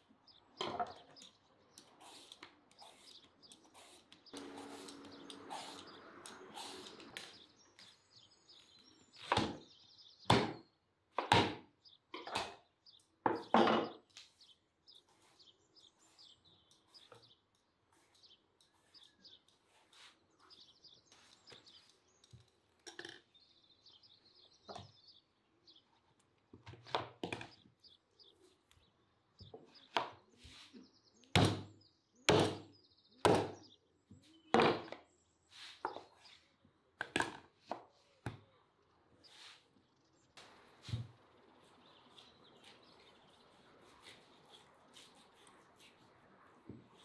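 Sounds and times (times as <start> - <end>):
birds chirping: 0.0 - 11.1, 11.7 - 47.0
knife chopping meat on a board: 10.3 - 10.6, 11.2 - 11.6.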